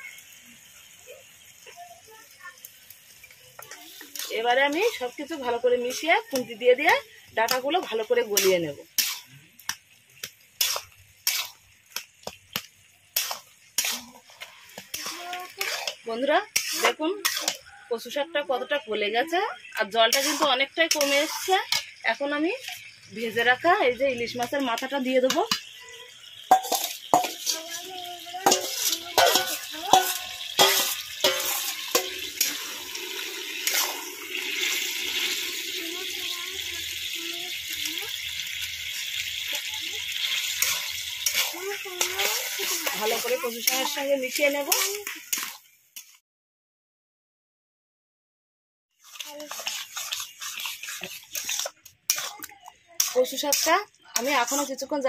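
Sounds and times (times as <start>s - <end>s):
greens simmering and sizzling: 0.0s - 46.2s, 48.9s - 55.0s
metal spatula scraping metal pan: 3.7s - 9.3s, 10.6s - 12.6s, 13.2s - 17.8s, 19.6s - 23.0s, 24.2s - 35.6s, 38.5s - 46.2s, 49.0s - 55.0s.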